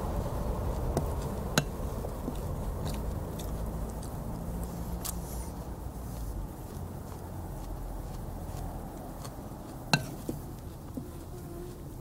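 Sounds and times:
low rumble: 0.0s - 9.8s.

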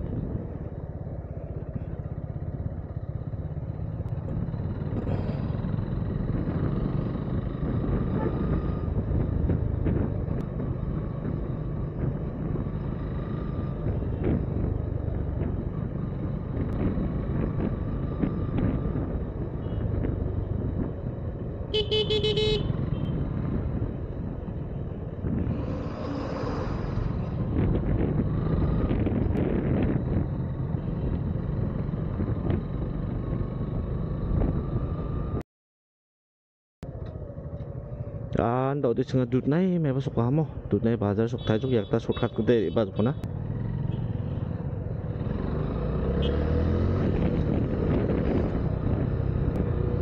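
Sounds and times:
road noise: 0.0s - 35.4s, 36.8s - 50.0s
vehicle horn honking: 21.7s - 23.1s.

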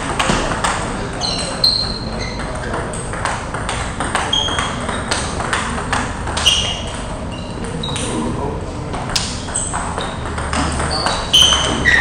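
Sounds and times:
table tennis balls clicking: 0.0s - 8.2s, 8.9s - 12.0s
short high squeaks: 1.2s - 2.5s, 4.3s - 5.2s, 6.4s - 8.0s, 10.8s - 12.0s.

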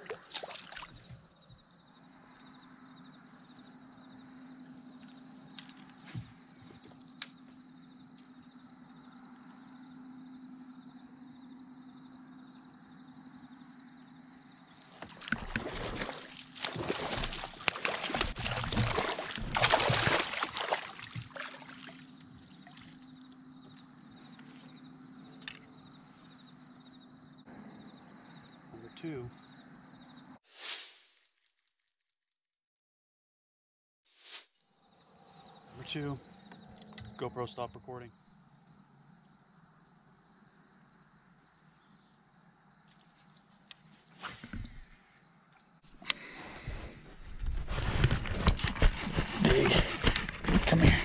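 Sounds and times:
high insect drone: 0.0s - 30.4s, 34.6s - 51.0s
water splashing against kayak: 15.0s - 22.1s.

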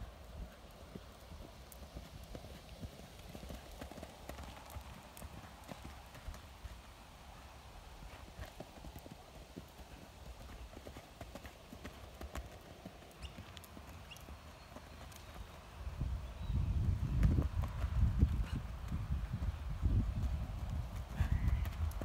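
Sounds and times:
faint hoofbeats on grass and dirt: 0.0s - 22.0s.

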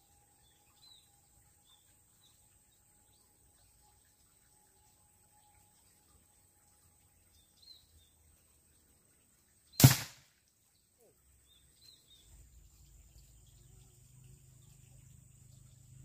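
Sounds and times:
sharp gunshot crack: 9.8s - 10.3s.

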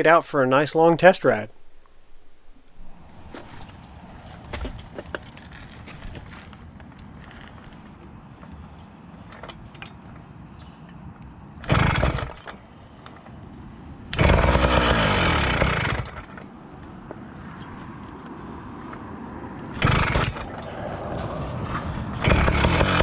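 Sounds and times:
two-stroke engine cranking: 11.6s - 12.6s, 14.1s - 16.5s, 19.6s - 20.7s, 21.7s - 23.0s.

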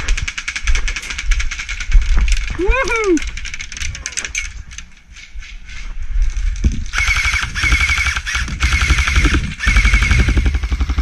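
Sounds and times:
airsoft rifle firing bursts: 7.0s - 11.0s.

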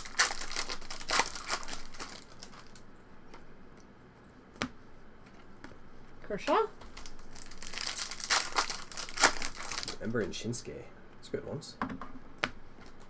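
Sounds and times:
foil wrapper tearing and crinkling: 0.0s - 2.8s, 7.0s - 10.2s.

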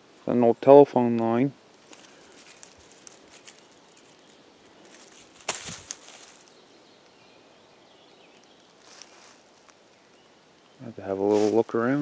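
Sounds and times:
faint outdoor background: 0.0s - 12.0s
footsteps crunching forest litter: 1.7s - 7.2s, 8.2s - 10.2s, 11.0s - 12.0s.

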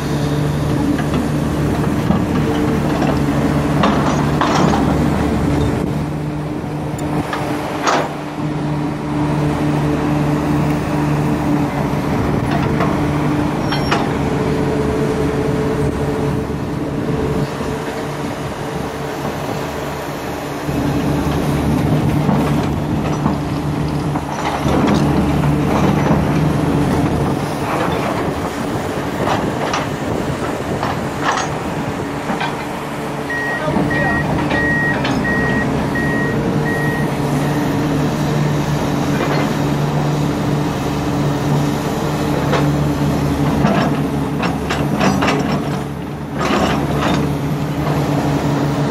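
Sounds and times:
excavator diesel engine under load: 0.0s - 48.9s
truck reversing beeper: 33.2s - 38.0s.

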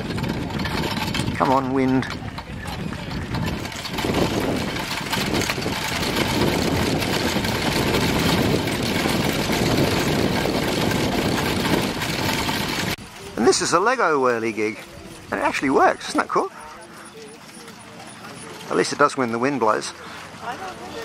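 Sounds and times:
wind blowing across microphone: 0.0s - 13.6s.

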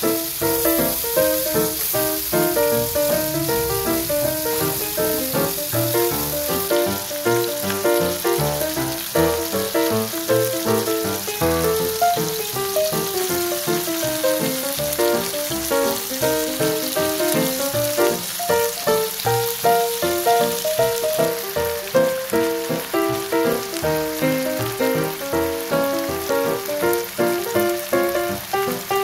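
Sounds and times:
chicken sizzling in oil: 0.0s - 29.0s.

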